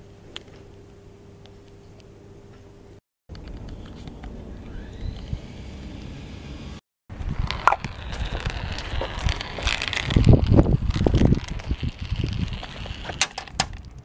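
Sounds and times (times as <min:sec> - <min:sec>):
marbles rolling on plastic track: 0:07.2 - 0:14.0.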